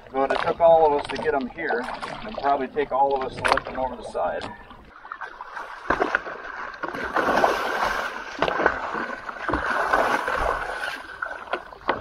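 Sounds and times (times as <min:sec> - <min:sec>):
shark thrashing and splashing water: 0:05.1 - 0:12.0.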